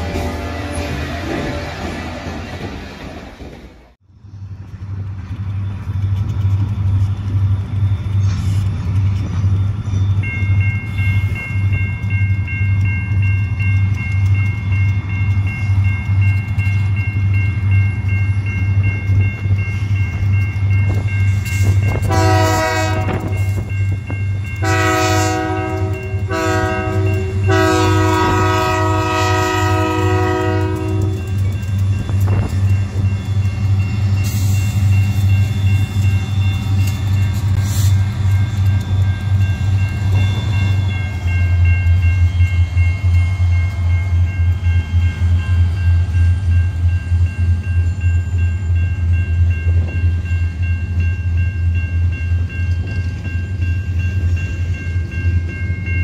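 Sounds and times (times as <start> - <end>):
locomotive air horn: 0.0 - 1.8, 22.0 - 23.3, 24.6 - 31.3
crossing warning bell ringing: 5.3 - 56.0.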